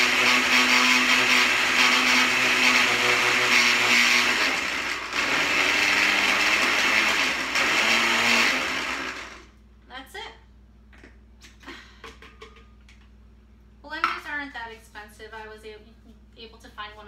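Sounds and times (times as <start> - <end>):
blender running: 0.0 - 9.5.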